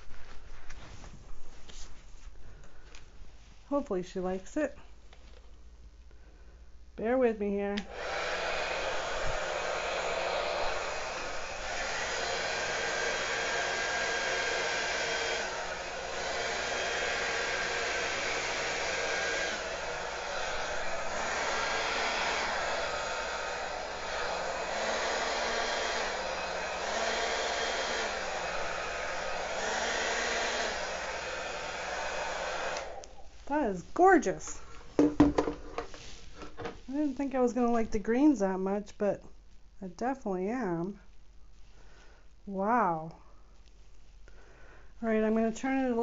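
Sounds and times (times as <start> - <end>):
hair dryer blowing: 7.0 - 37.1.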